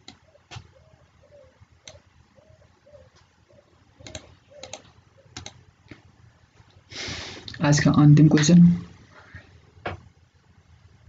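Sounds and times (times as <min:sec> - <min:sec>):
sharp clicks: 0:00.0 - 0:00.7, 0:01.8 - 0:02.1, 0:04.0 - 0:05.6.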